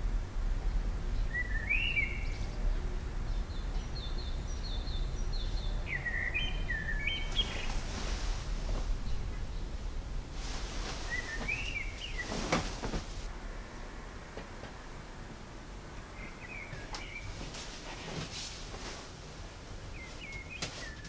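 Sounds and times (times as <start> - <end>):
low background rumble: 0.0 - 21.0
rustle: 0.0 - 21.0
songbirds chirping: 0.0 - 21.0.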